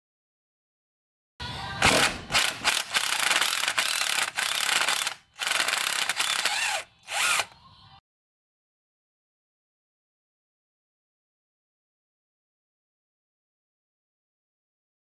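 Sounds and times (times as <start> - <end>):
cordless drill spinning bolts: 2.4 - 7.6.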